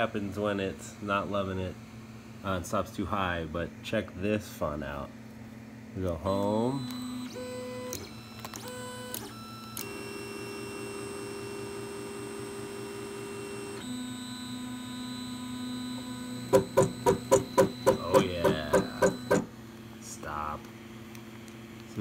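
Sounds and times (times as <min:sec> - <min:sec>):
stepper motors whining: 0:06.5 - 0:19.5
sharp knocks: 0:16.5 - 0:19.5.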